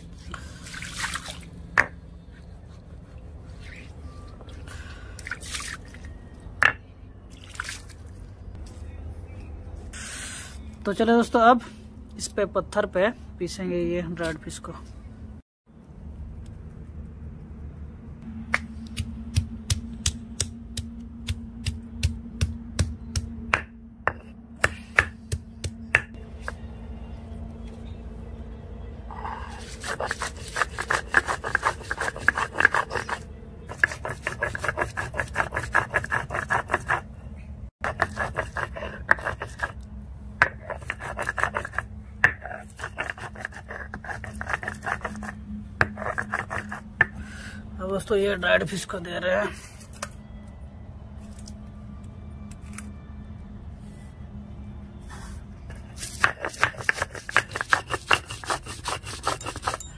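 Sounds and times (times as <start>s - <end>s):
stone roller grinding strokes: 29.5s - 37.1s, 37.8s - 39.8s, 40.4s - 47.2s, 55.7s - 59.9s.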